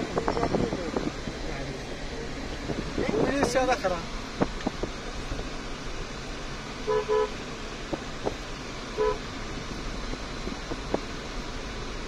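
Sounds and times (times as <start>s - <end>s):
car engine and road noise: 0.0s - 12.0s
car horn beeps: 6.8s - 7.4s, 9.0s - 9.3s.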